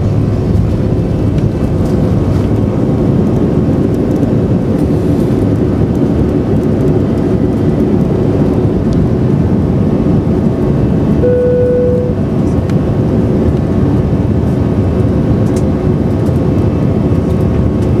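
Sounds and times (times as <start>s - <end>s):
jet engine cabin rumble: 0.0s - 18.0s
short steady tone: 11.2s - 12.3s.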